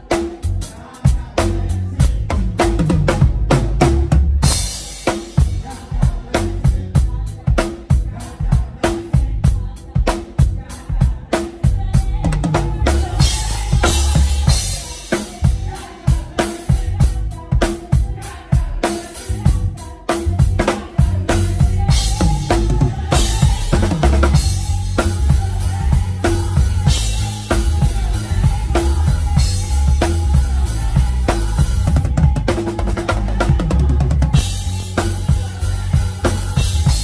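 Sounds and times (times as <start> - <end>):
drum kit playing fast groove: 0.0 - 37.0.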